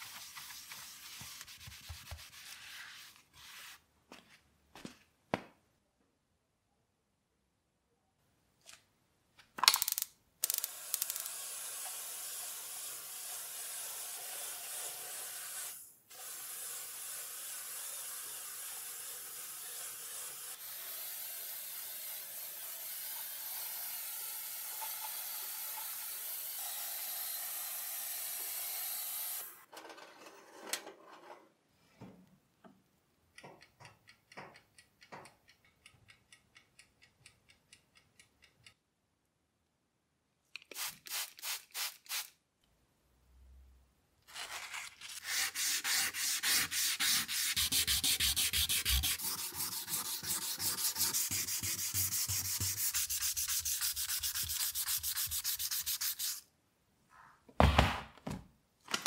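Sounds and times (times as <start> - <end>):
aerosol spray can hissing: 40.7 - 42.4, 45.6 - 56.4.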